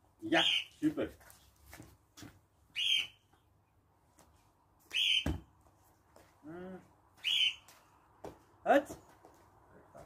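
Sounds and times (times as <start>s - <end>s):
dull thump: 5.2s - 5.5s.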